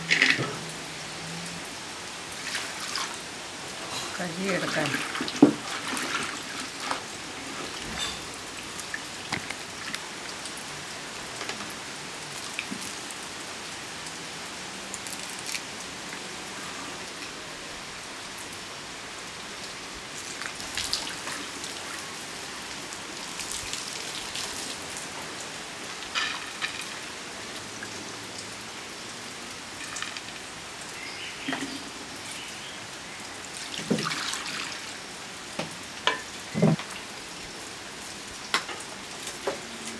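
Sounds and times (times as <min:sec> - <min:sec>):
water splashing and dripping: 0:00.0 - 0:16.2, 0:19.2 - 0:28.8, 0:29.4 - 0:39.9.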